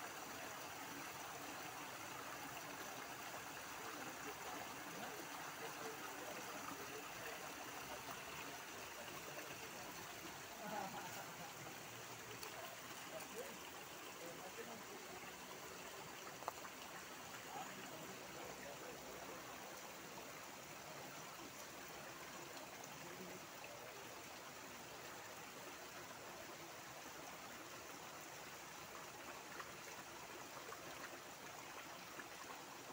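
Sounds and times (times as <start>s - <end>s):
creek water rushing: 0.0s - 32.9s.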